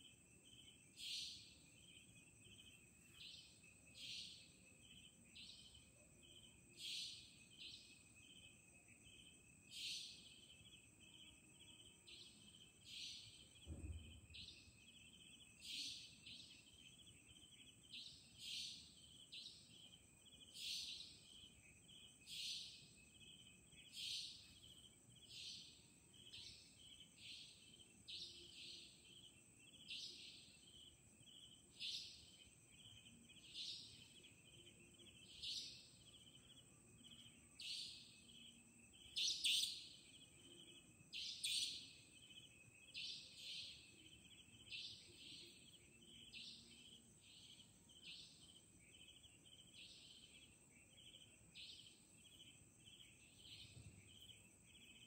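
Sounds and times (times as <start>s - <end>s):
faint regular chirping: 0.0s - 55.0s.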